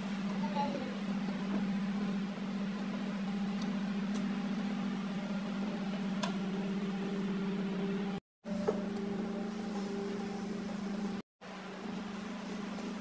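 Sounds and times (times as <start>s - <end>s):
low motor hum: 0.0s - 13.0s.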